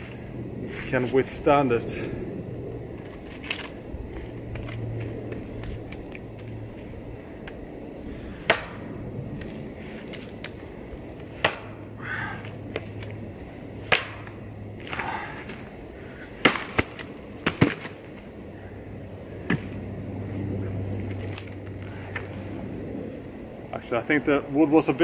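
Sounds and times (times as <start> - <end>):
knife chopping into tree trunk: 8.5 - 8.8, 11.4 - 11.8, 13.9 - 15.1, 16.4 - 18.0.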